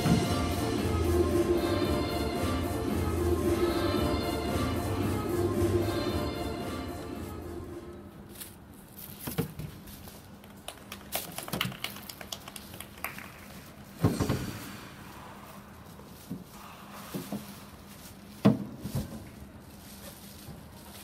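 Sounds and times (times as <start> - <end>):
scattered handclaps: 10.6 - 13.6
loud thump: 14.0 - 15.0.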